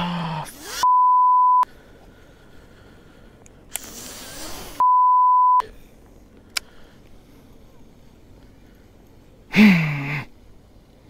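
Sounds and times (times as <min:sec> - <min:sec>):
censor bleep: 0:00.8 - 0:01.6, 0:04.8 - 0:05.6.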